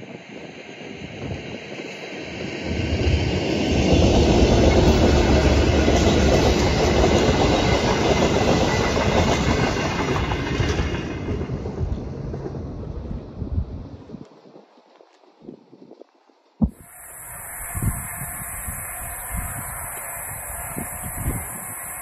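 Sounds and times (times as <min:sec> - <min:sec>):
train wheels clacking on rails: 0:00.0 - 0:12.9
diesel train rumble: 0:00.2 - 0:14.0, 0:16.6 - 0:22.0.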